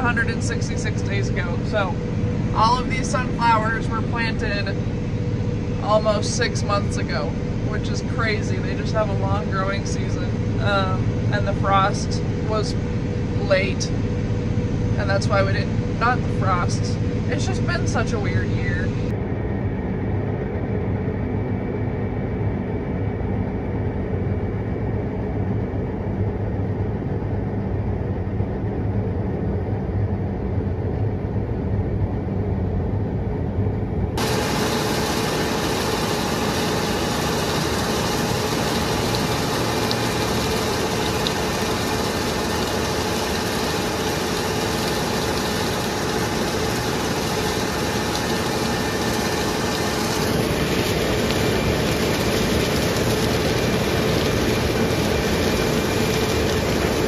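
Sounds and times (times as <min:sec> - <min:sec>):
combine harvester rumble and hiss: 0:00.0 - 0:14.0, 0:14.9 - 0:19.1, 0:34.2 - 0:57.0
tractor engine droning: 0:00.0 - 0:19.1, 0:34.2 - 0:57.0.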